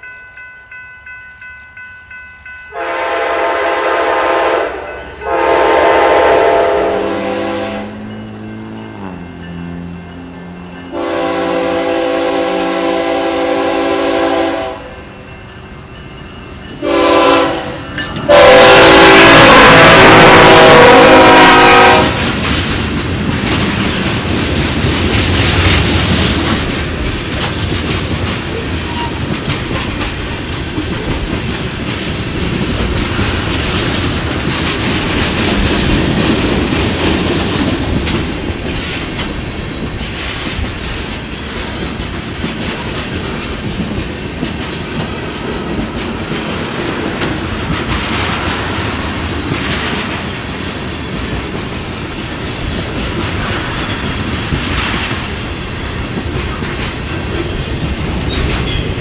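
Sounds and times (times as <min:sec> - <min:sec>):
locomotive air horn blasts: 0:02.7 - 0:08.1, 0:10.9 - 0:15.0, 0:16.8 - 0:22.3
freight cars wheel and rail clatter: 0:15.0 - 0:18.4, 0:19.6 - 0:59.0.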